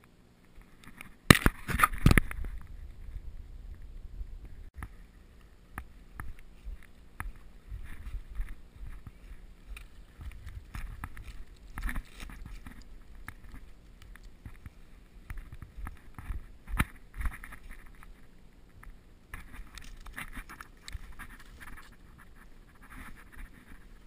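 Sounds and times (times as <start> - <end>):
twigs snapping: 0.0 - 2.7, 4.8 - 22.1
rustling brush: 0.5 - 24.0
low uneven rumble: 2.2 - 19.3
footsteps on sandy bank: 5.0 - 17.7.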